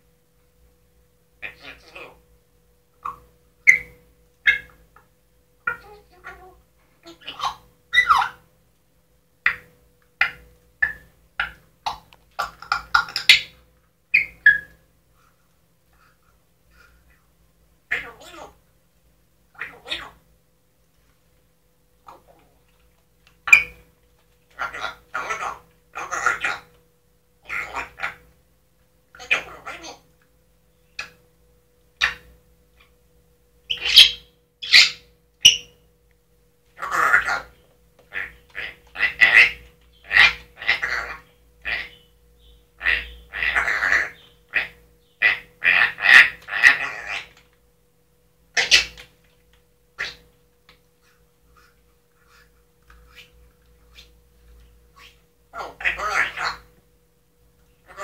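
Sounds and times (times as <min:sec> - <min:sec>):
parrot high-pitched calls: 0:01.4 - 0:02.3, 0:03.0 - 0:04.8, 0:05.6 - 0:08.5, 0:09.5 - 0:14.8, 0:17.9 - 0:18.6, 0:19.5 - 0:20.2, 0:22.0 - 0:22.8, 0:23.4 - 0:26.8, 0:27.4 - 0:28.4, 0:29.1 - 0:30.1, 0:32.0 - 0:32.9, 0:33.6 - 0:35.8, 0:36.7 - 0:47.5, 0:48.5 - 0:49.1, 0:50.0 - 0:50.4, 0:51.0 - 0:56.8, 0:57.8 - 0:58.0
parrot clicking and chirping: 0:09.4 - 0:14.8, 0:48.6 - 0:54.2.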